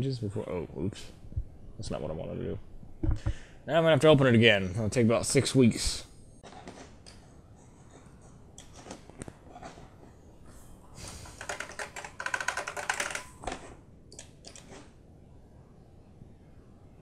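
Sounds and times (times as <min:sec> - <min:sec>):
keyboard typing: 0:11.2 - 0:14.8.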